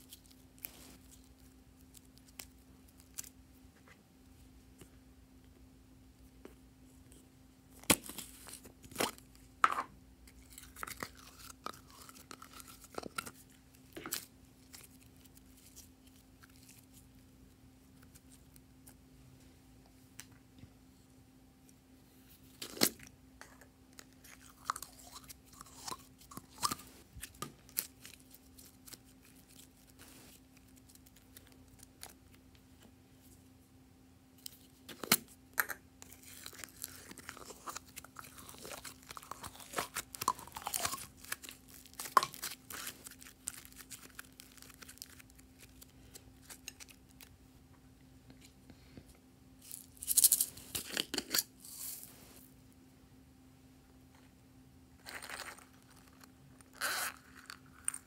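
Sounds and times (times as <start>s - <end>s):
sticky slime crackling: 36.0s - 47.3s.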